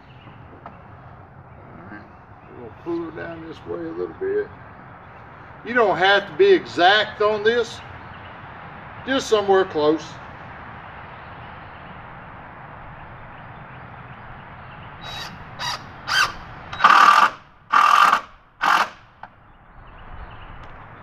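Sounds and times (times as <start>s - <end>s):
cordless drill driving screw: 15.1s - 19.0s.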